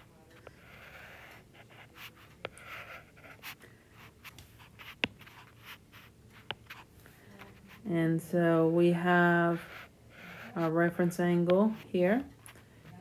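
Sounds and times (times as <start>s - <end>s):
stylus scratching on glass screen: 9.4s - 13.0s.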